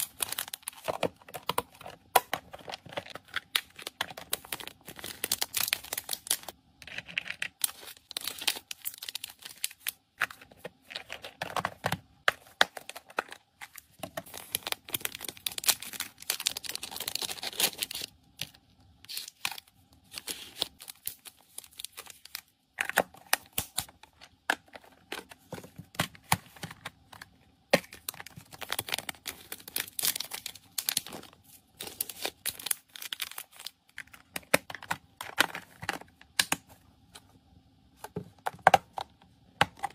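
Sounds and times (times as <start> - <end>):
plastic bags crinkling: 0.0 - 6.6, 12.4 - 18.1, 27.8 - 34.6.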